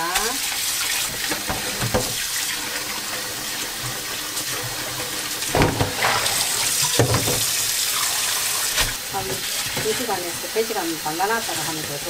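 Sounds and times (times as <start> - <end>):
water splashing: 0.4 - 11.8
tap running into a metal sink: 0.9 - 10.2.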